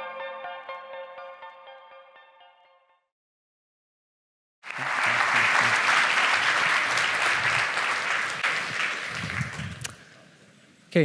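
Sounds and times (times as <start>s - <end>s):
audience applauding: 4.6s - 10.1s.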